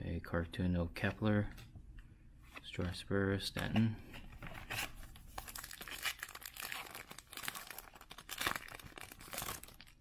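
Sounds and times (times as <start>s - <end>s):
foil wrapper crinkling and tearing: 4.7s - 10.0s.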